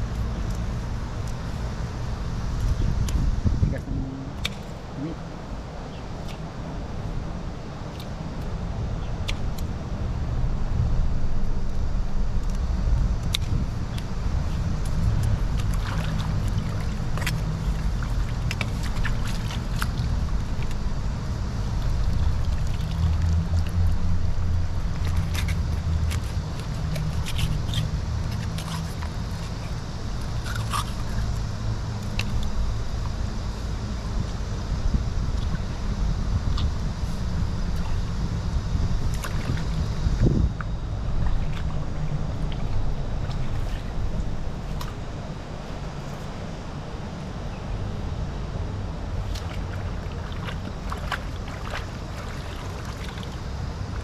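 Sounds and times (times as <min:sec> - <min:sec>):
low rumble: 0:08.6 - 0:52.9
river water splashing and trickling: 0:13.3 - 0:34.2, 0:39.0 - 0:47.4, 0:48.4 - 0:54.0.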